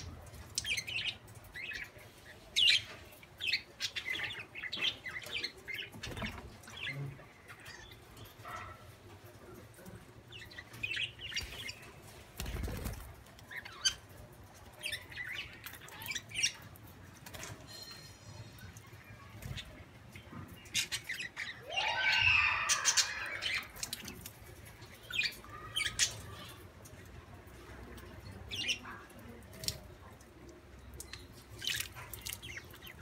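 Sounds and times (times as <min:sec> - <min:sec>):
budgerigars chirping and squawking: 0:00.0 - 0:09.6, 0:10.3 - 0:14.2, 0:19.2 - 0:26.6.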